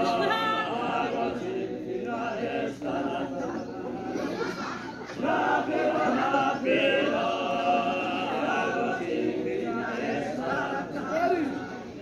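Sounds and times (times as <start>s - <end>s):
group of voices chanting: 5.1s - 12.0s.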